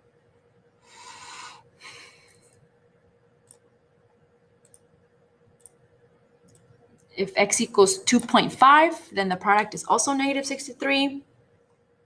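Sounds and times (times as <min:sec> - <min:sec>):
faint steady hum: 0:00.0 - 0:12.0
computer mouse clicks: 0:03.4 - 0:03.7, 0:04.6 - 0:04.9, 0:05.5 - 0:05.8, 0:06.4 - 0:07.1.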